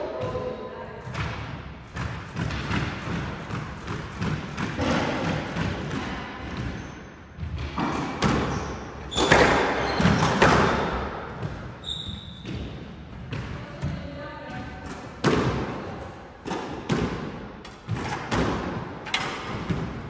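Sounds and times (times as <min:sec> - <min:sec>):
racket hitting squash ball: 0:00.0 - 0:20.0
ball hitting court walls: 0:00.1 - 0:20.0
shoe squeaks: 0:08.4 - 0:10.5, 0:11.8 - 0:12.7.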